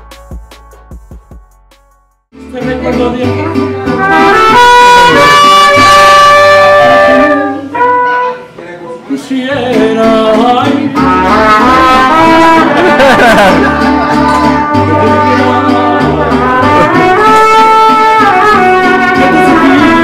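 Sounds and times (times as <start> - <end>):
mariachi band playing: 0.0 - 1.5, 2.3 - 20.0
trumpets: 3.9 - 8.6, 11.0 - 20.0.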